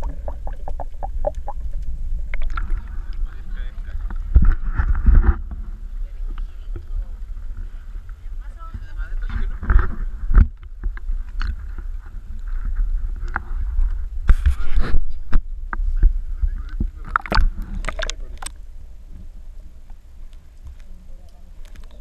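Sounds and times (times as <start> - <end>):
water sloshing and splashing: 0.0 - 5.7, 16.9 - 18.6
low rumble: 0.0 - 14.3.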